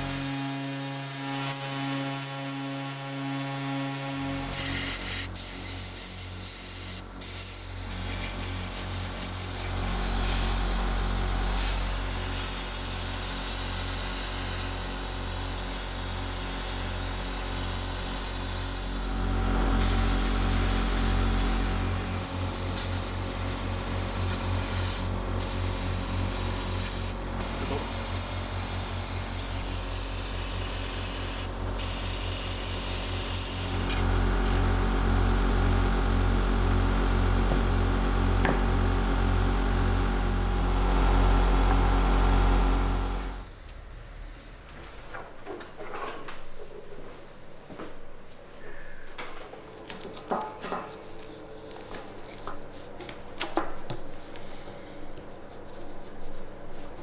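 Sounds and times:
workshop tool hissing: 3.4 - 34.0
low pulsing hum: 7.8 - 13.7, 18.2 - 32.8.

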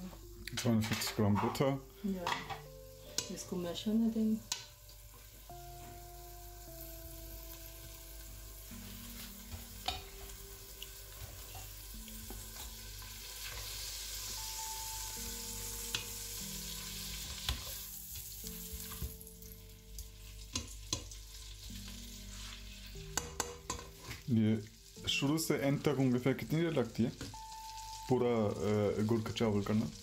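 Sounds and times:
butter sizzling in a pot: 0.0 - 30.0
spatula knocking against pot: 23.2 - 23.9.

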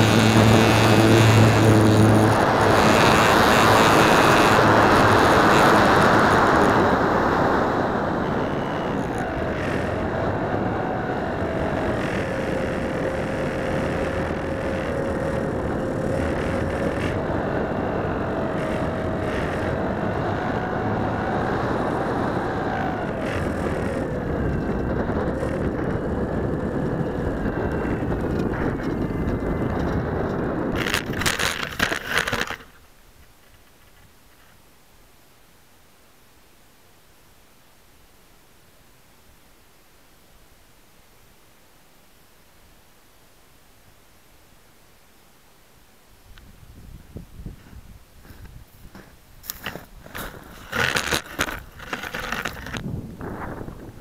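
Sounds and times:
rushing air: 0.0 - 31.2
electric motor whine: 0.0 - 32.8, 47.1 - 54.0.

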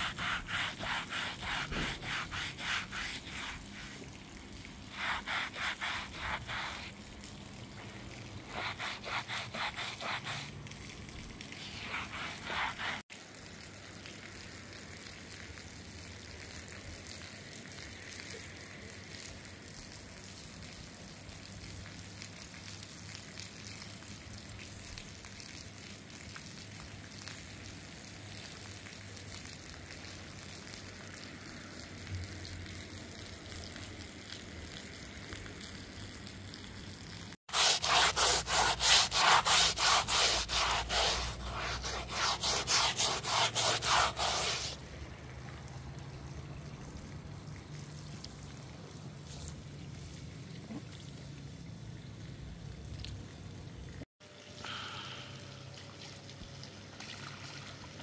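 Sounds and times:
scrubbing wet rug: 0.0 - 13.1, 37.5 - 44.8
water from hose running: 0.0 - 50.5
faint drips: 44.8 - 57.9.

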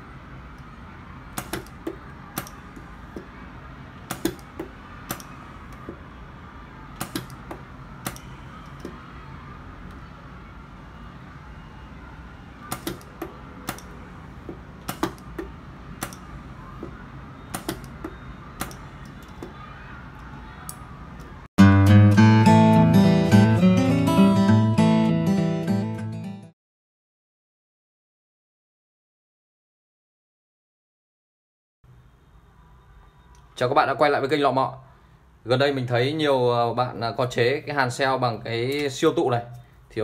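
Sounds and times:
spot welder sharp snaps: 1.4 - 1.8, 8.0 - 8.3, 12.7 - 13.9, 16.0 - 16.2.

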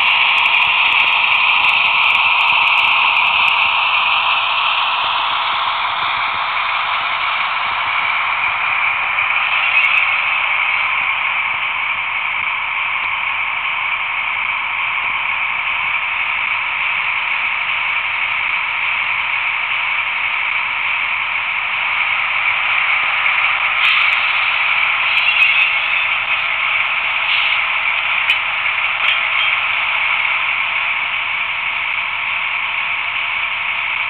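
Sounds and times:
diesel engine sound from small speaker: 0.0 - 34.0.

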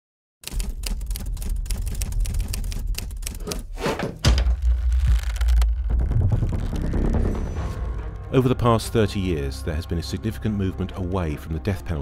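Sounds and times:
typewriter keys clacking: 0.4 - 3.8.

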